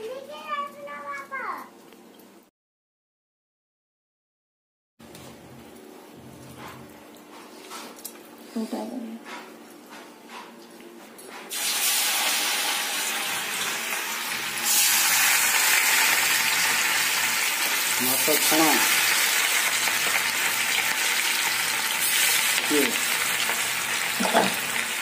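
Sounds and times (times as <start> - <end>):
fish sizzling in hot oil: 11.5 - 25.0.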